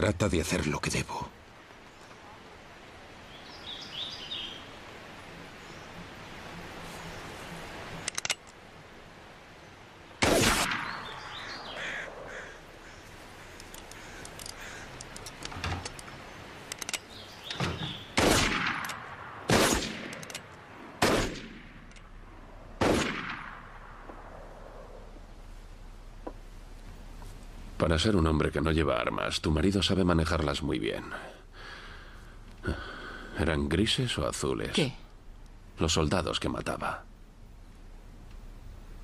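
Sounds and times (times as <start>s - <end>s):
revolver gunshots echoing: 10.2s - 11.8s, 18.1s - 20.4s, 21.0s - 21.9s, 22.8s - 25.0s.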